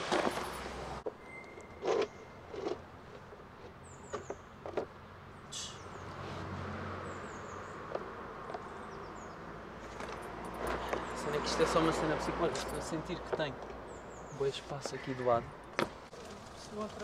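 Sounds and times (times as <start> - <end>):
boards knocking and scraping: 0.0 - 1.2.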